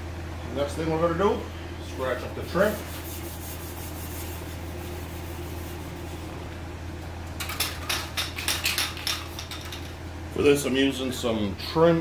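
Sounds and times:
objects clicking and rattling: 7.4 - 10.0.

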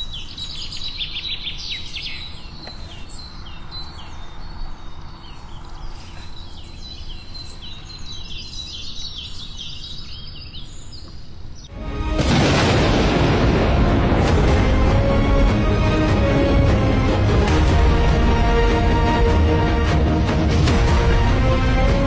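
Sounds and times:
birds chirping: 0.0 - 11.8.

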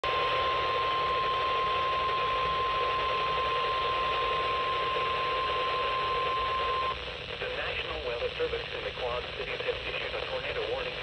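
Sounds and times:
weather radio warning alarm tone: 0.0 - 7.0
radio static hiss: 0.0 - 11.0.

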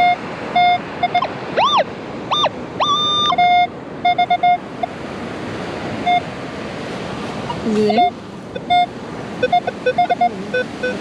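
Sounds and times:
metal detector beeps and tones: 0.0 - 4.9, 6.0 - 6.3, 7.5 - 11.0.

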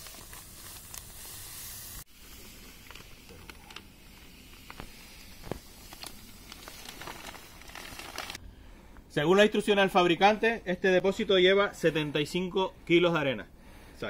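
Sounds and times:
plastic bag crinkling: 0.0 - 8.4
sand pouring from a sack: 0.0 - 8.4.

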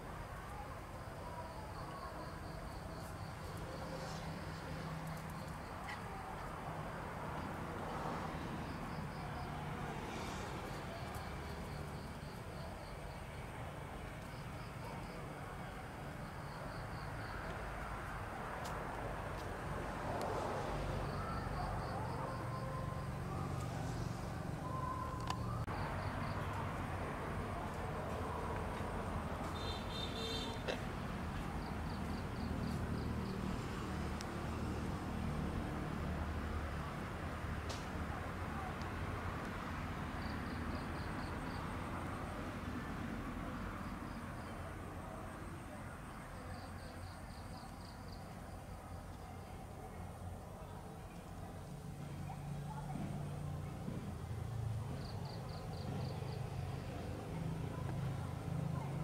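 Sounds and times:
outdoor background noise: 0.0 - 59.0
insects chirping: 0.9 - 19.0, 20.1 - 28.4, 29.0 - 36.6, 40.1 - 42.1, 54.6 - 56.8.

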